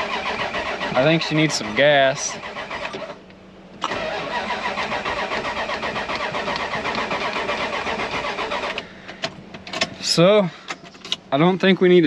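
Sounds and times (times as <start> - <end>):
starter cranking engine: 0.0 - 3.2, 3.8 - 10.0.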